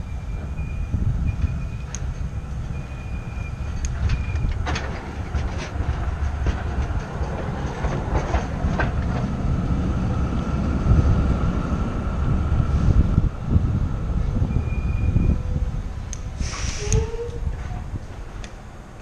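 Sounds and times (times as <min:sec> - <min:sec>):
tram running: 0:00.0 - 0:19.0
wind rumbling on microphone: 0:00.0 - 0:19.0
bike rattling over rails: 0:03.7 - 0:09.4.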